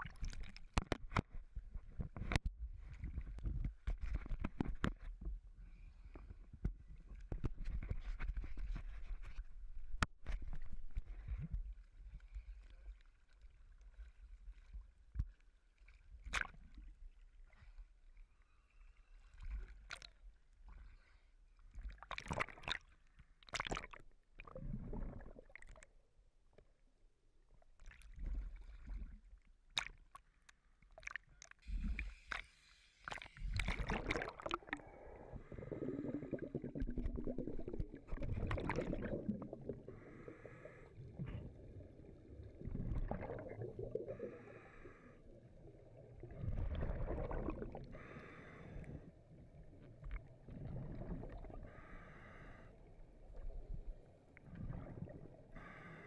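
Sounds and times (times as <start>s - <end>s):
splashing and bubbling: 0.0s - 5.0s, 21.8s - 26.0s, 30.9s - 56.0s
water sloshing and gurgling: 0.0s - 26.8s, 27.4s - 56.0s.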